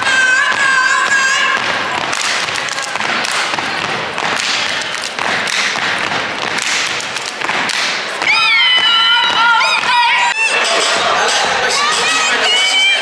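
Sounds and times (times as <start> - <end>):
people clapping and stomping: 0.0 - 11.1.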